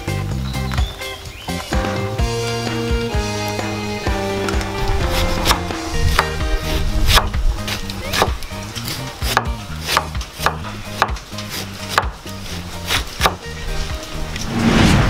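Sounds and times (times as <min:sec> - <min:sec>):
background music: 0:00.0 - 0:15.0
cleaver chopping on wooden board: 0:04.5 - 0:06.4, 0:07.1 - 0:13.4.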